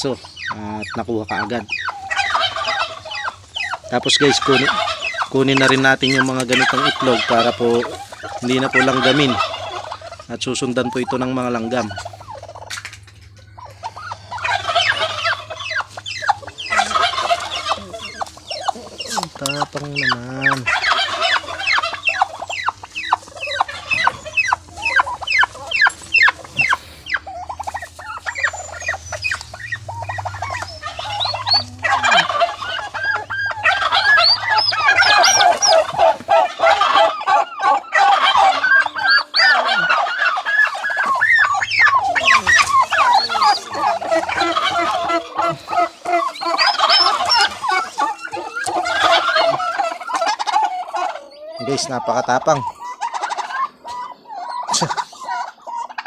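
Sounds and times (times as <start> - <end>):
turkey hens calling: 0.0 - 56.0
turkey poults peeping: 0.0 - 56.0.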